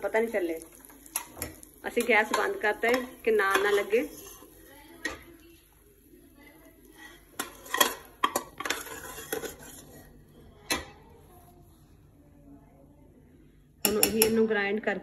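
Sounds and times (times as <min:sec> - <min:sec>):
steel spoon scraping metal pot: 0:01.1 - 0:04.7, 0:06.9 - 0:10.1.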